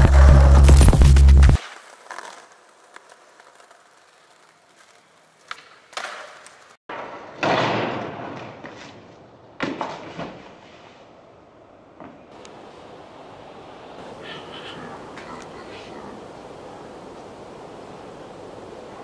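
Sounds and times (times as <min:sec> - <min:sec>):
skateboard and body impacts: 0:00.0 - 0:11.1, 0:12.0 - 0:12.4
faint street hush: 0:10.5 - 0:19.0.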